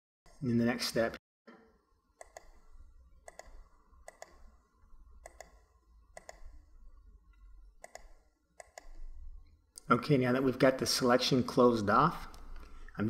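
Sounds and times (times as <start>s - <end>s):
computer mouse clicking: 2.2s - 2.6s, 3.2s - 4.5s, 5.2s - 6.7s, 7.3s - 9.1s.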